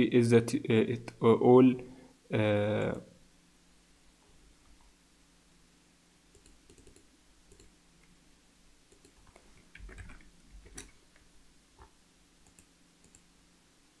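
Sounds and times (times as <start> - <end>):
scroll wheel ticks: 6.3 - 7.7, 8.9 - 9.2, 12.4 - 13.3
computer mouse clicks: 6.3 - 7.8, 8.9 - 11.0, 11.8 - 13.3.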